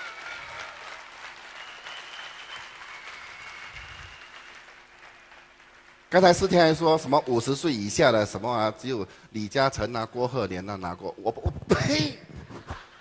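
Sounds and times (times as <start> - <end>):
large audience applauding: 0.0 - 6.8.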